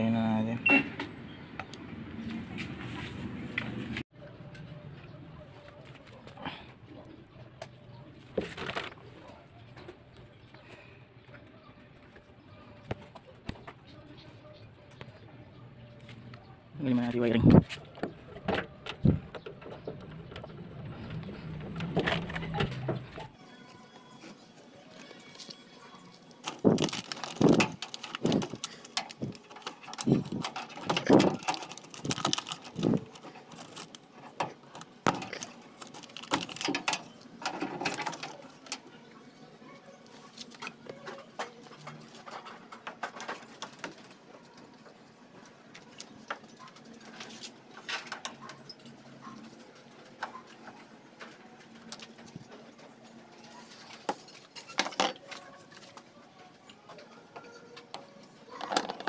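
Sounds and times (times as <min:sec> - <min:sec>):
connectors clicking and knocking: 0:26.4 - 0:38.9.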